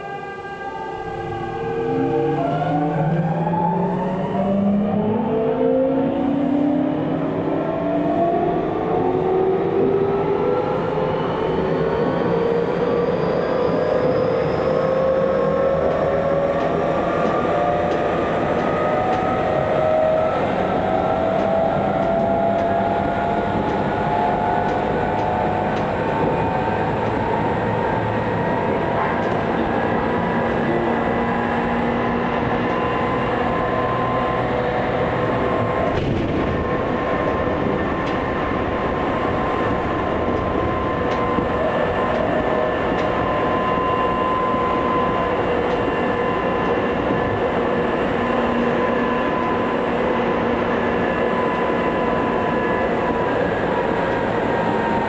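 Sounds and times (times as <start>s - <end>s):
wheels rumbling on rails: 0.0s - 55.0s
train traction motors whining: 15.1s - 55.0s.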